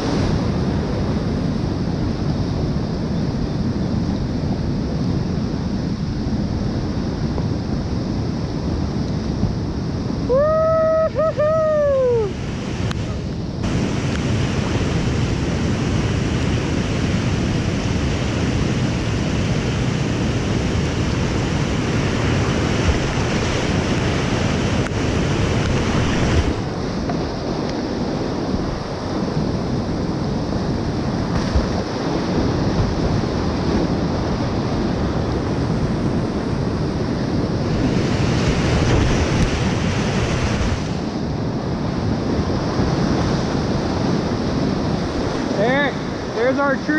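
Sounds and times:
whitewater rapids rushing: 10.1s - 41.8s, 42.6s - 46.9s.

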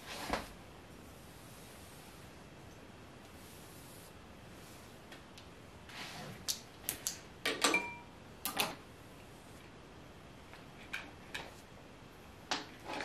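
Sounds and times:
soft rustle: 0.0s - 6.5s.

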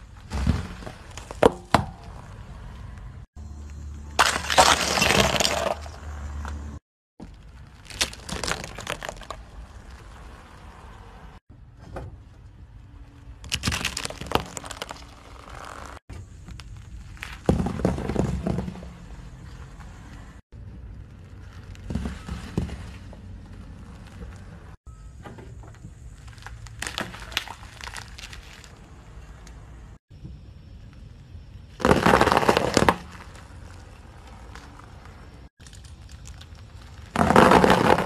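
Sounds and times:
tyre crushing small objects: 4.2s - 6.6s, 7.2s - 10.2s, 13.4s - 19.6s, 20.8s - 24.8s, 25.8s - 29.5s, 31.7s - 38.0s.

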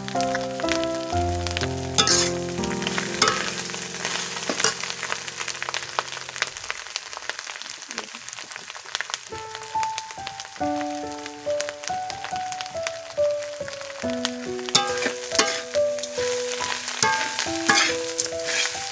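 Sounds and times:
background music: 0.0s - 5.5s, 9.4s - 18.9s
food sizzling in a pan: 0.0s - 18.9s
metal spatula scraping pan: 2.0s - 2.4s, 3.2s - 3.6s, 14.7s - 15.8s, 17.0s - 18.9s.

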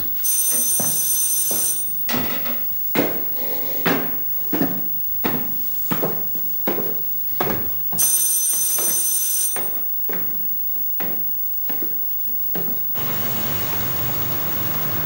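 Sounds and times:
electric bell ringing: 13.0s - 15.0s
steady low hum: 13.0s - 15.0s.

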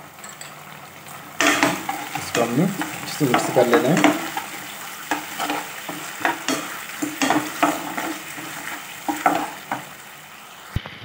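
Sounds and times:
low sizzle of frying: 0.0s - 11.0s
metal spatula scraping a pan: 1.4s - 10.0s.

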